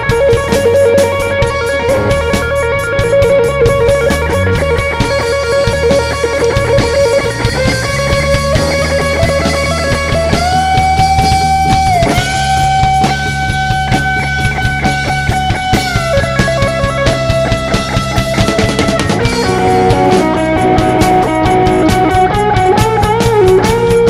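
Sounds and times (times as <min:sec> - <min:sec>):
electric guitar sustained lead notes: 0:00.0 - 0:24.0
live rock band playing: 0:00.0 - 0:24.0.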